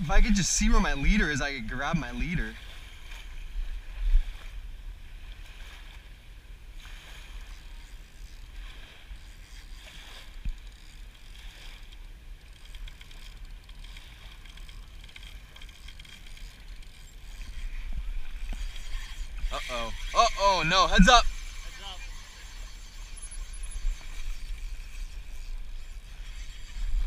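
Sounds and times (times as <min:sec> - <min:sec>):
wind rumbling on microphone: 0:00.0 - 0:06.1, 0:14.1 - 0:27.0
small waves on beach: 0:00.0 - 0:27.0.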